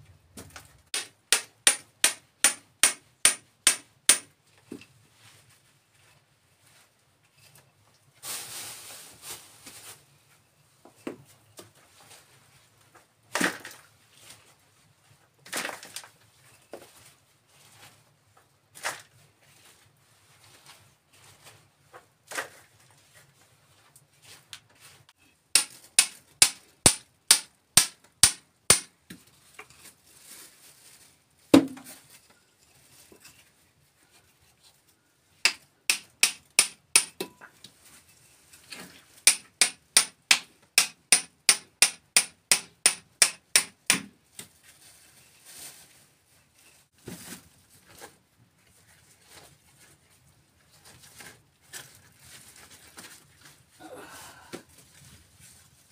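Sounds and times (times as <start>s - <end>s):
hammer striking steel chisel: 0.9s - 4.3s, 25.6s - 28.9s, 35.4s - 37.4s, 39.3s - 44.1s.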